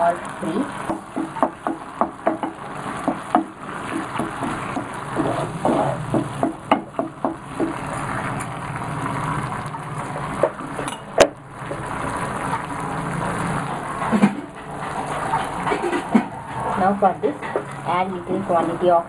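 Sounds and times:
onions sizzling in frying pan: 0:00.0 - 0:19.0
spatula scraping a pan: 0:03.8 - 0:06.2, 0:13.6 - 0:18.0.

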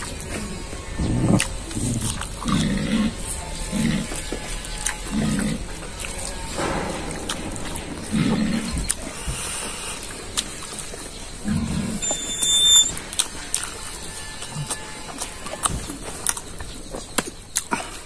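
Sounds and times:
wet chewing: 0:01.2 - 0:06.4, 0:13.1 - 0:18.0.

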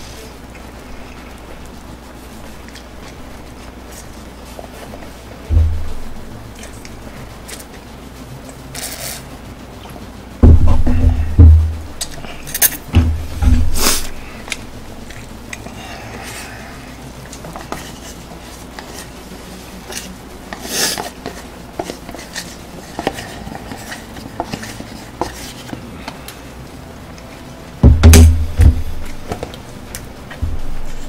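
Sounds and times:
heavy thumps of objects set down: 0:10.4 - 0:11.8, 0:12.9 - 0:13.8, 0:27.8 - 0:29.5.

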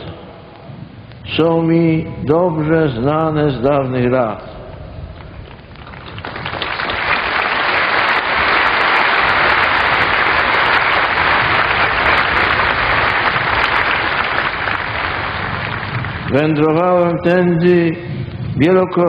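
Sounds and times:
large crowd applauding: 0:05.4 - 0:16.6.

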